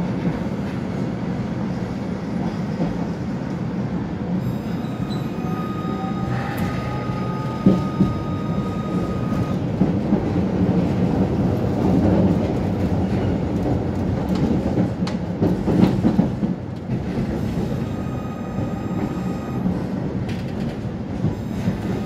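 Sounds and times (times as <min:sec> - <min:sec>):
tram wheels rumbling on rails: 0:00.0 - 0:22.0
high steady whine: 0:04.4 - 0:09.6.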